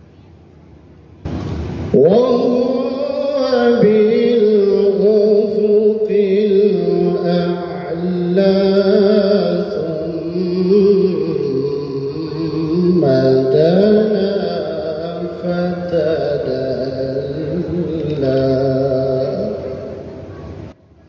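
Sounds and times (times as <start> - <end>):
burst of noise: 1.2 - 3.3
man reciting melodically over loudspeakers: 1.9 - 20.4.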